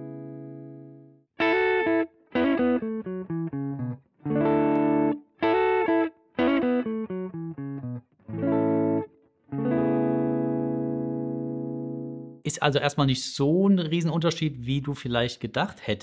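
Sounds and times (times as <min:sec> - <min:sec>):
electric guitar strumming chords: 0:00.0 - 0:12.4.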